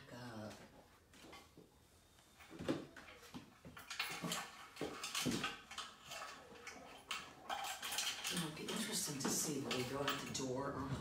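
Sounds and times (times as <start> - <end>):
light clattering and knocking: 2.4 - 11.0.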